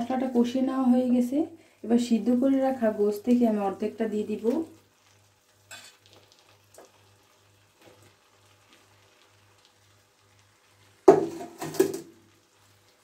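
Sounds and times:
sizzling and crackling in a pan: 0.0 - 13.0.

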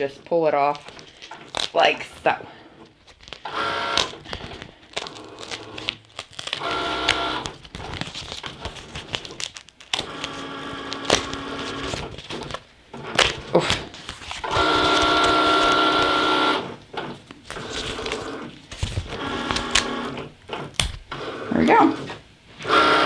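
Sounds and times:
sticker peeling off paper: 3.0 - 16.2
cutting machine whirring: 6.6 - 7.5, 14.4 - 18.5, 19.1 - 23.0.

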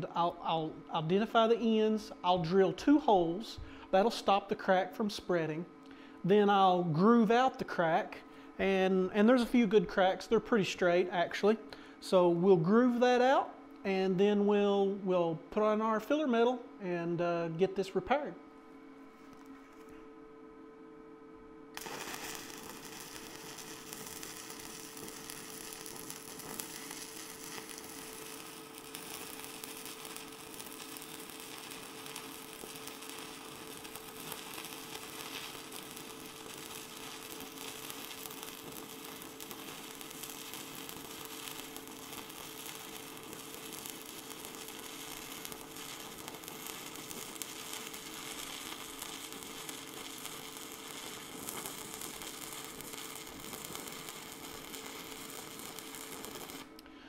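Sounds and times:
steady hum: 0.0 - 57.0
welding arc burning: 21.7 - 56.8.

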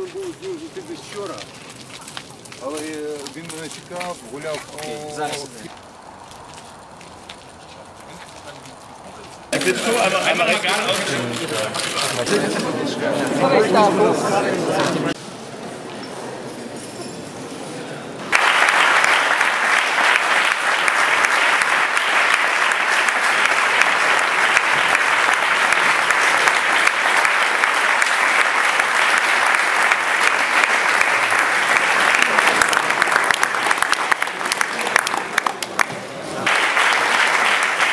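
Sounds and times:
audience applauding: 9.5 - 13.0, 18.3 - 37.9.

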